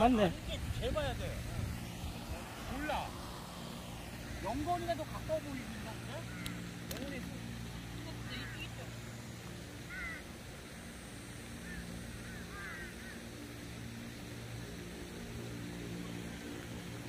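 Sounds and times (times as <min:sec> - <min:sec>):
steady low hum: 0:00.0 - 0:17.0
short bird calls: 0:06.2 - 0:06.6.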